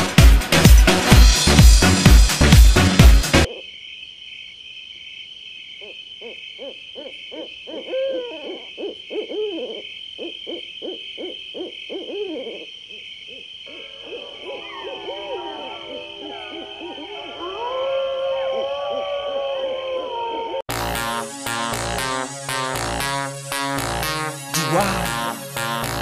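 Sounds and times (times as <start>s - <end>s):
hooting calls: 5.7s - 20.6s
high pulsing chirr: 20.7s - 26.0s.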